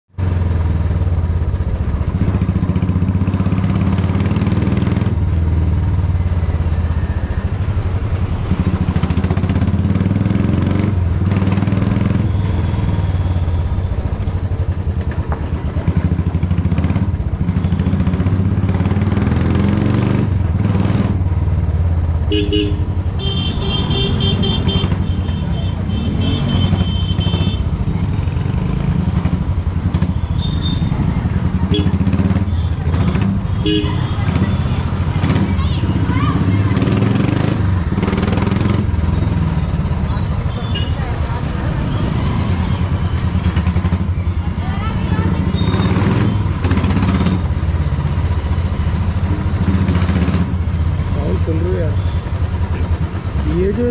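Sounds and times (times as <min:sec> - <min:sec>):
motorcycle engine running loud: 0:00.2 - 0:53.9
vehicle horns honking: 0:22.2 - 0:27.8, 0:30.1 - 0:31.0, 0:31.6 - 0:34.8, 0:40.3 - 0:41.1.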